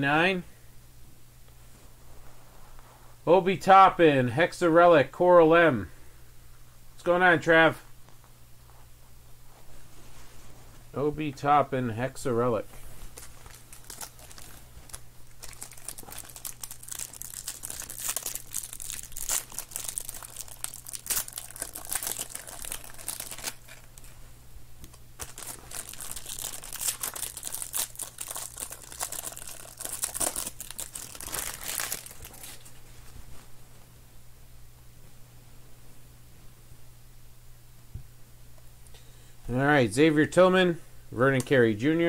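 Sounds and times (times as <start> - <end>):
plastic sleeves crinkling: 12.6 - 33.6.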